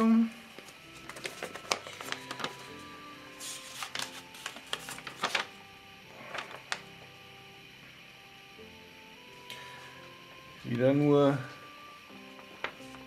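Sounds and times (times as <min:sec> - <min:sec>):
soft background music: 0:00.0 - 0:13.0
paper rustling: 0:00.5 - 0:06.9, 0:12.4 - 0:13.0.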